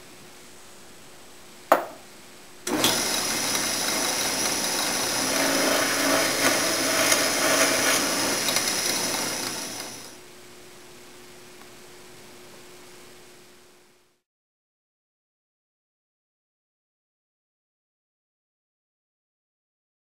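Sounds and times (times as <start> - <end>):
sharp knock: 1.7 - 2.0
drill press boring wood: 2.7 - 10.2.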